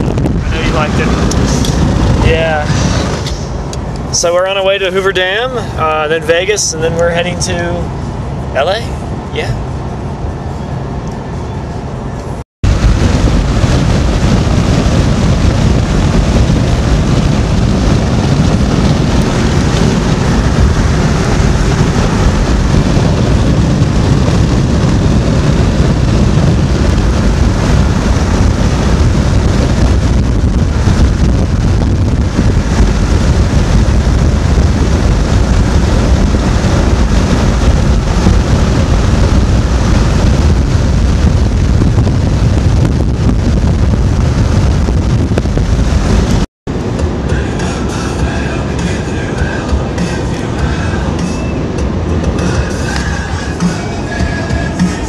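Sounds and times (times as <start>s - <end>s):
wind and road noise: 0.0s - 55.0s
wind buffeting microphone: 0.0s - 55.0s.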